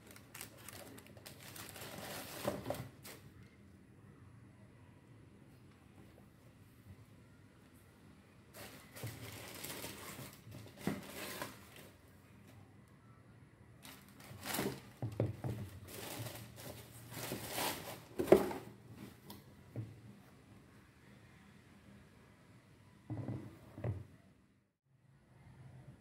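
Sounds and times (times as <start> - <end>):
packing paper crinkling: 0.0 - 3.2, 8.5 - 11.9, 13.8 - 15.0, 15.7 - 18.2.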